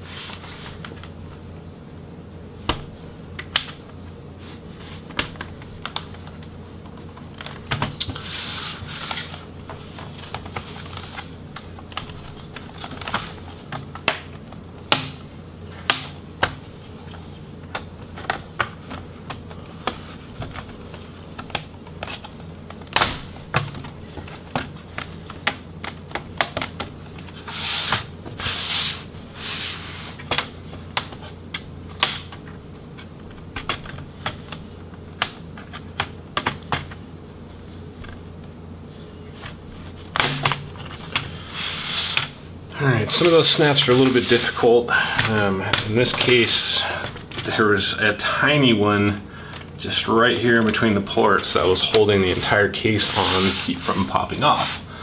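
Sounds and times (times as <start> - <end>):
plastic scraping on plastic: 4.4 - 14.6, 43.0 - 47.6, 50.6 - 54.9.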